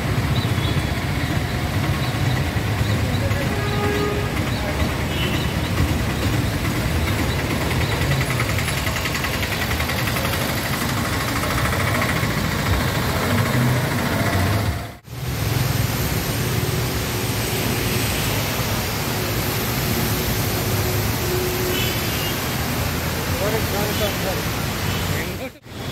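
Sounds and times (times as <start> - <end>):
three-wheeler engine running: 0.0 - 17.0
vehicles spraying through floodwater: 0.0 - 25.9
water hissing: 15.0 - 25.9.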